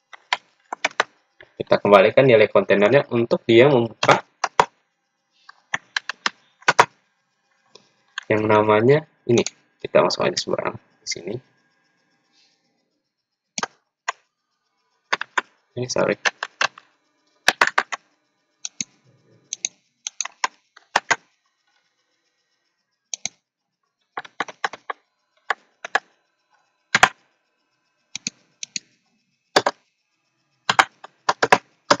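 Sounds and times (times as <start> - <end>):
computer keyboard typing: 0.1 - 1.1, 3.8 - 4.7, 5.5 - 6.9, 9.3 - 9.6, 15.1 - 16.8, 17.4 - 18.0, 18.6 - 21.2, 23.1 - 23.4, 24.2 - 26.1, 26.9 - 27.2, 28.2 - 28.8, 29.6 - 29.8, 30.7 - 32.0.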